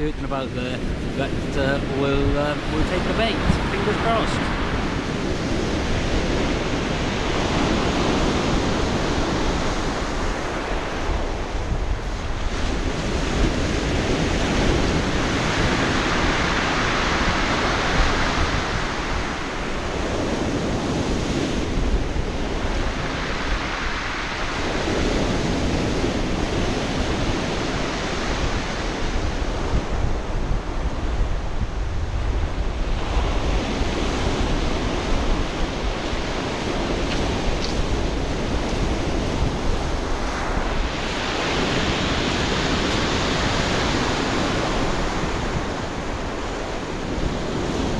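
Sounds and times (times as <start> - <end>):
sea waves breaking on pebbles: 3.1 - 21.0.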